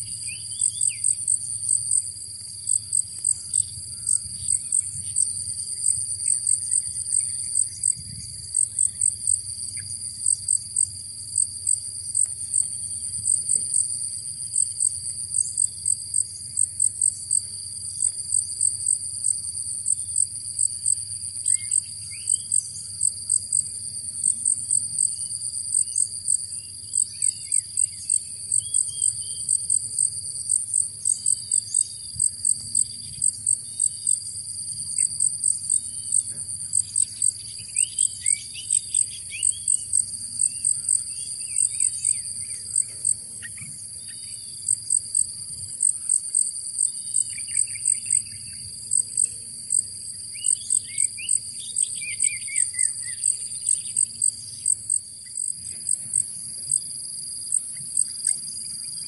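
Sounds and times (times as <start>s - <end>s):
high insect drone: 0.0s - 59.0s
insects chirping: 0.0s - 59.0s
bird chirping calls: 36.8s - 44.5s.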